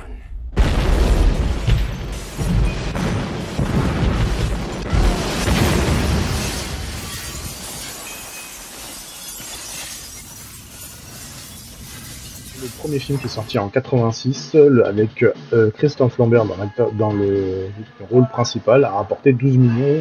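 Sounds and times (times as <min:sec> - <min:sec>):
booming crashes: 0:00.4 - 0:13.6
glass shattering: 0:01.6 - 0:13.6
music: 0:13.6 - 0:20.0.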